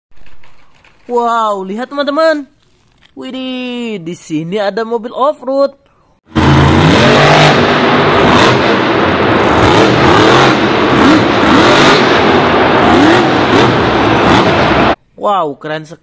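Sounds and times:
truck engine revving hard: 6.3s - 15.0s.

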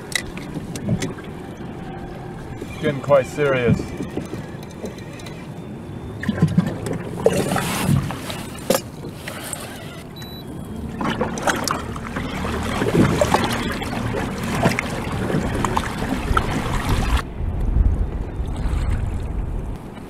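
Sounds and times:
water slapping against kayak hull: 11.0s - 17.2s.

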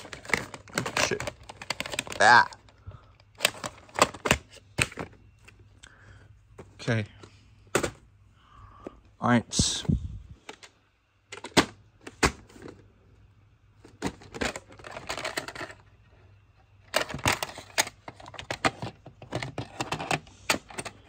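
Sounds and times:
plastic rattling: 0.0s - 5.2s, 13.8s - 15.9s, 16.8s - 21.0s.

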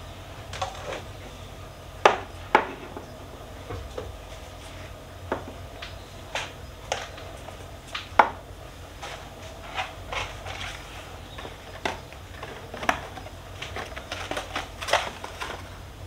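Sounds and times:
plastic containers clacking: 9.0s - 15.8s.

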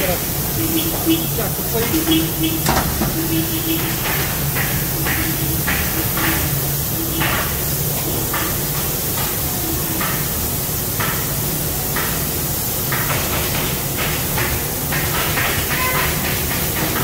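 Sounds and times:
machine humming: 0.0s - 8.4s.

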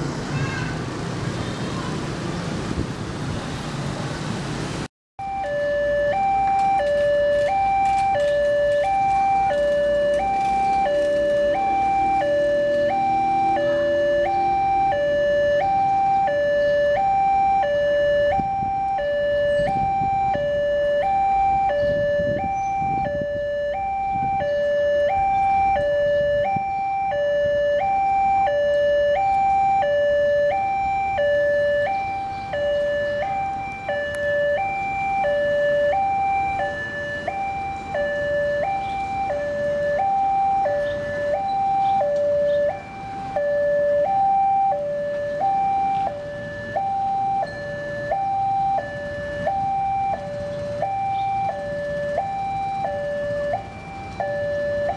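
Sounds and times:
level crossing two-tone alarm: 5.2s - 54.9s.

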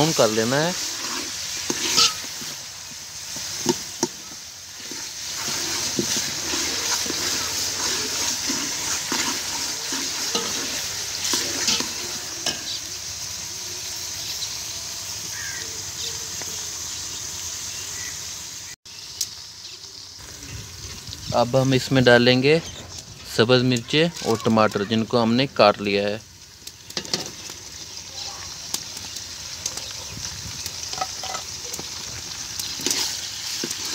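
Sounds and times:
onions sizzling in a pot: 0.0s - 33.9s
ladle scraping a pot: 0.8s - 2.6s, 4.8s - 12.8s, 30.9s - 31.5s.

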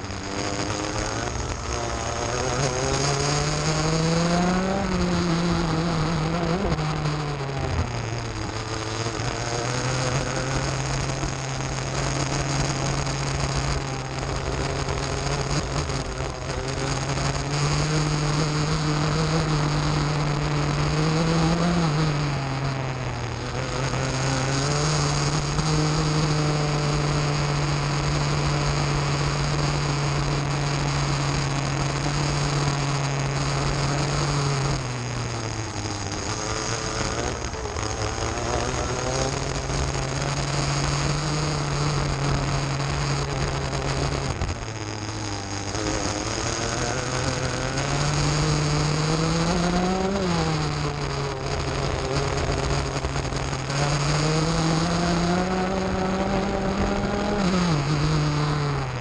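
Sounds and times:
kart engine running hard: 0.0s - 59.0s.

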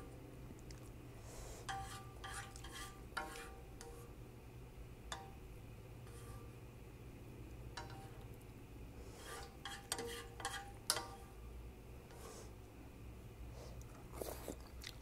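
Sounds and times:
chopsticks stirring noodles and broth: 1.6s - 4.1s.

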